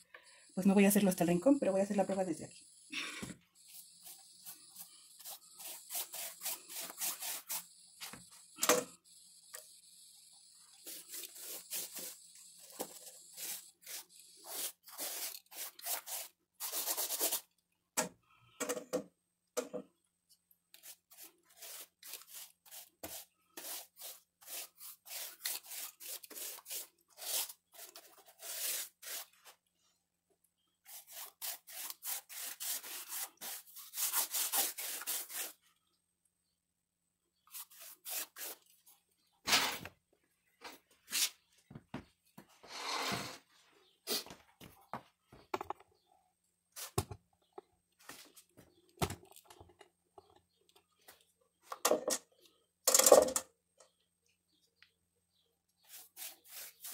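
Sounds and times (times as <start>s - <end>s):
paintbrush scrubbing on plaster wall: 3.6s - 7.8s, 10.5s - 17.5s, 20.8s - 29.6s, 30.8s - 35.7s, 37.4s - 39.3s, 55.8s - 56.9s.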